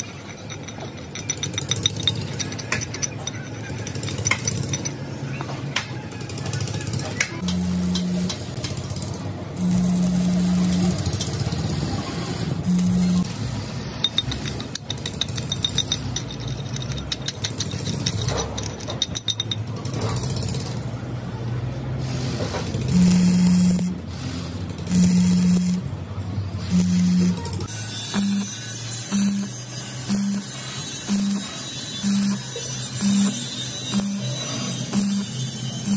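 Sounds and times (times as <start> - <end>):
arc welding buzz and crackle: 7.4 - 13.7, 22.0 - 25.9, 26.6 - 35.9.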